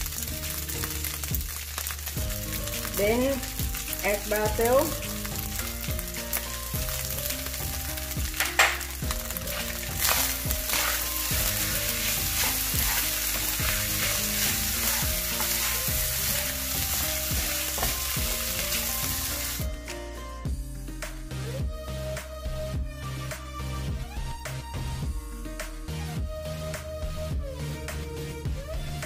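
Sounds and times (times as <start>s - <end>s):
rice sizzling in a wok: 0.0s - 19.7s
wooden spatula scraping a wok: 8.8s - 19.6s.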